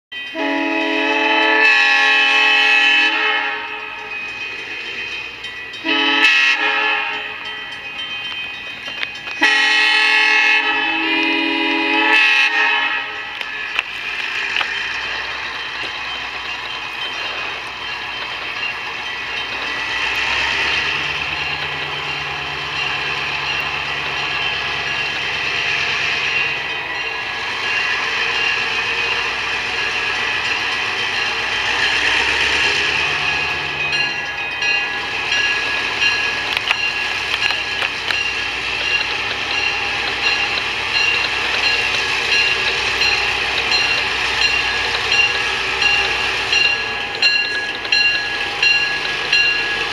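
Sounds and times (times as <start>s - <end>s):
train rolling: 0.1s - 49.9s
diesel locomotive engine running: 0.3s - 49.9s
locomotive air horn blasts: 0.4s - 3.8s, 5.8s - 7.4s, 9.4s - 13.3s.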